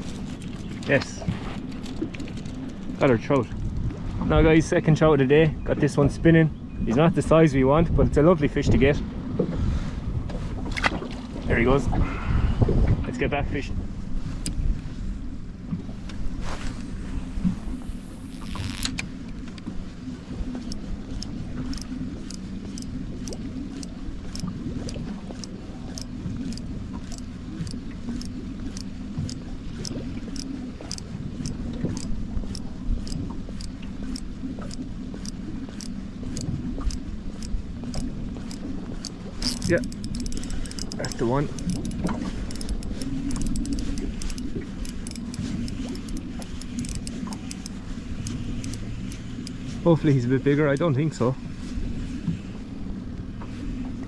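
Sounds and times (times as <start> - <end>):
wind on microphone: 0.0 - 19.1
choppy water: 0.0 - 54.0
wind: 0.0 - 54.0
fishing reel ticking: 20.6 - 51.1.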